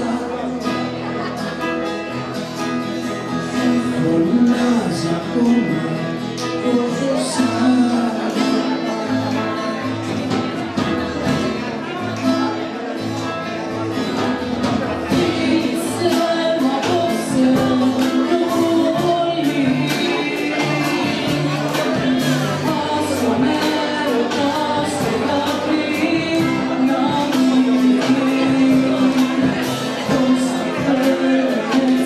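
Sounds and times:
acoustic guitar strummed: 0.0 - 32.0
woman singing: 3.4 - 8.9, 15.1 - 32.0.

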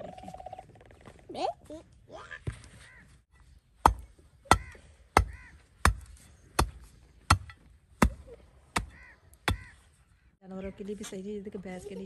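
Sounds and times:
iron bar striking damp earth: 3.4 - 9.8.

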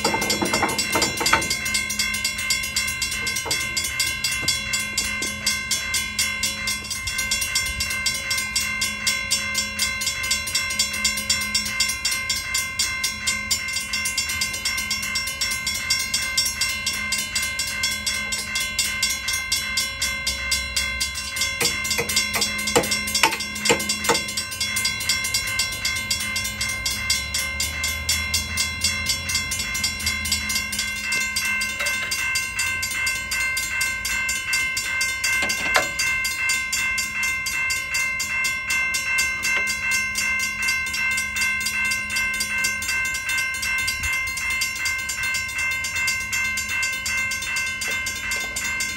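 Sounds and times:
crossing bell ringing: 0.0 - 48.9.

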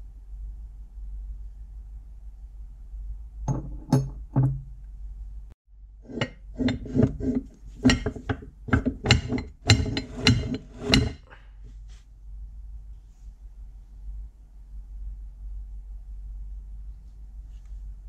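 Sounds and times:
metallic knocks and clanks: 3.5 - 4.7, 6.1 - 11.4.

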